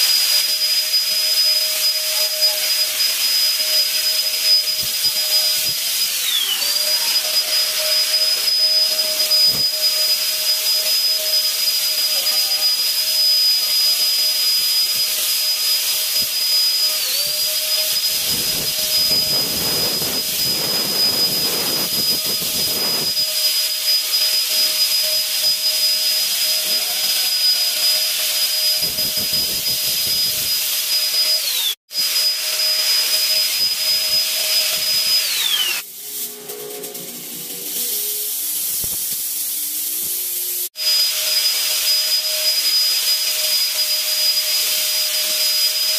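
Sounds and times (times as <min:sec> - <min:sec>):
fogger blower motor whine: 0:00.0 - 0:45.9
spray hissing: 0:37.2 - 0:42.1.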